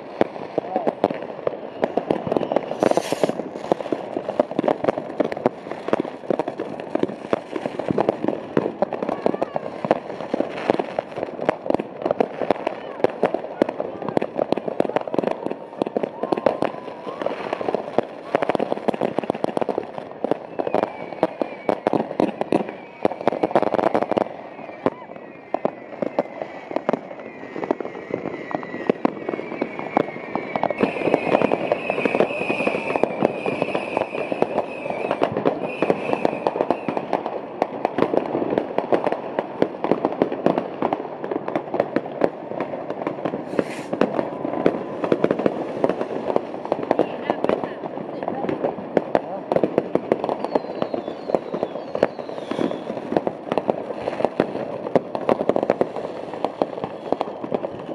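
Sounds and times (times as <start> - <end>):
fireworks bangs and crackles: 0.0 - 57.9
high whistling tone: 28.4 - 36.9, 50.4 - 52.9.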